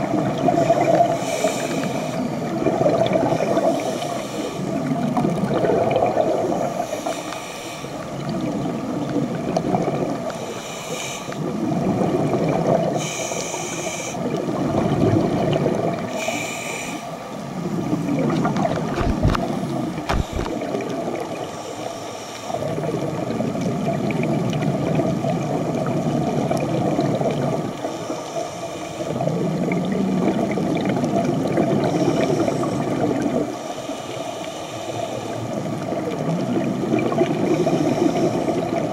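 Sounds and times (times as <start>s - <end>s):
exhalation bubbling gurgle: 0.0s - 1.2s, 2.2s - 3.8s, 4.7s - 6.9s, 8.2s - 10.3s, 11.4s - 13.0s, 14.2s - 16.1s, 17.6s - 21.4s, 22.6s - 28.0s, 29.1s - 33.6s, 35.6s - 38.9s
regulator inhalation hiss: 1.2s - 2.3s, 3.7s - 4.8s, 6.8s - 8.0s, 10.4s - 11.4s, 13.0s - 14.2s, 16.1s - 17.2s, 33.6s - 35.6s.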